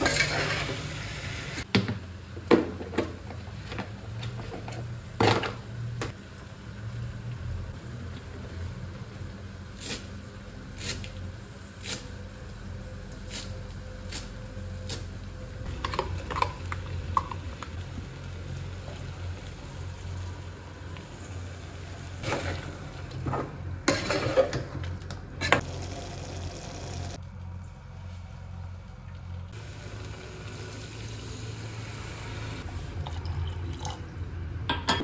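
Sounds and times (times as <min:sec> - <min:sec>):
scraping and stirring in pot: 0:00.0 - 0:01.0, 0:22.2 - 0:25.6
low hum of gas stove: 0:00.0 - 0:35.0.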